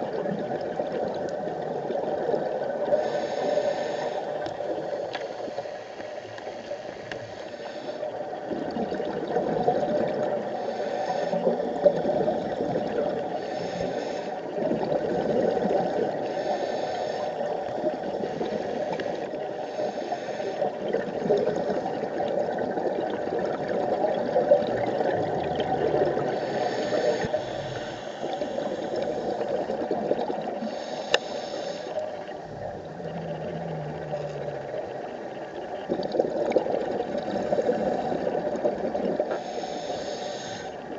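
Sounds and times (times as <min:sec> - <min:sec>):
scuba regulator breathing: 0:02.9 - 0:08.2, 0:10.4 - 0:12.5, 0:13.3 - 0:14.5, 0:15.9 - 0:22.2, 0:25.0 - 0:30.0, 0:30.6 - 0:35.3, 0:39.2 - 0:40.9
bubbling exhalations underwater: 0:08.5 - 0:10.5, 0:14.6 - 0:16.2, 0:20.8 - 0:26.5, 0:32.4 - 0:35.2, 0:35.8 - 0:39.3.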